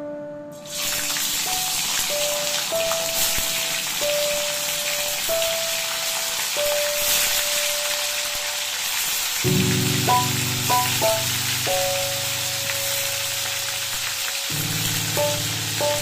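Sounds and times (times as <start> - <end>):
food sizzling in hot oil: 0.6 - 16.0
slow held music notes: 9.4 - 16.0.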